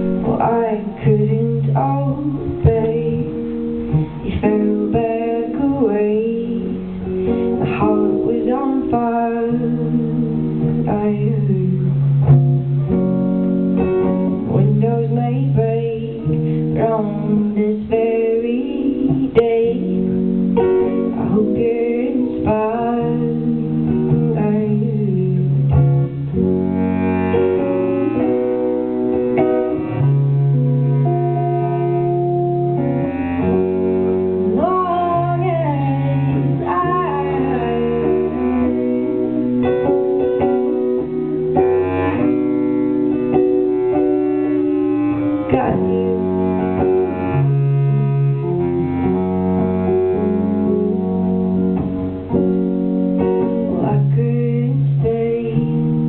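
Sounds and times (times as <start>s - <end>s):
strummed electric guitar: 0.0s - 56.0s
bass clarinet: 22.4s - 56.0s.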